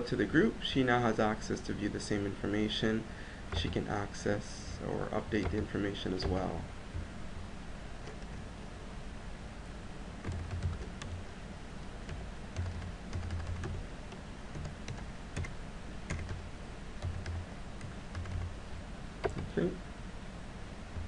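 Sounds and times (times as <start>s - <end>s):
low steady hum: 0.0s - 21.0s
typing on keyboard: 10.2s - 11.2s, 12.1s - 15.5s, 16.1s - 16.4s, 17.0s - 18.5s, 19.2s - 19.5s.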